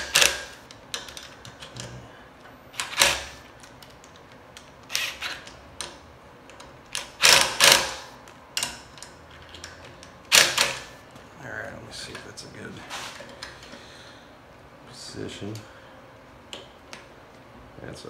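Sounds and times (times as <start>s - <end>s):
impact driver bursts: 2.8s - 3.4s, 4.9s - 5.4s, 7.0s - 8.1s.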